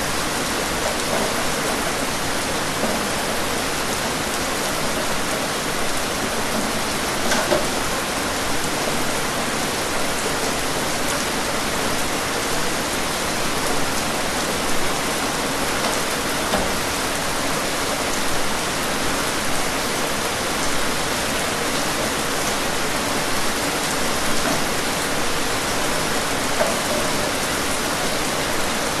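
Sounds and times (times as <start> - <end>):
steady rain hiss: 0.0 - 29.0
raindrop taps: 0.8 - 1.9, 6.5 - 7.8, 15.7 - 16.8.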